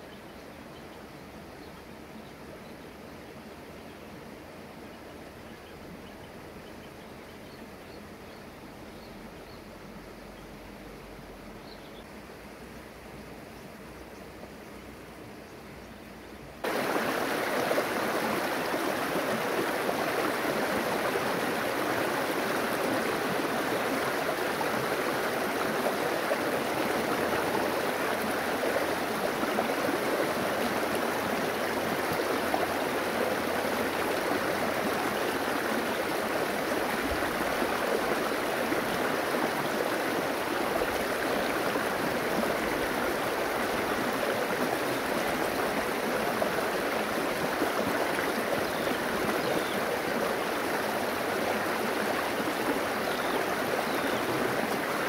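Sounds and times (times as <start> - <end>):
river water flowing: 0.0 - 55.0.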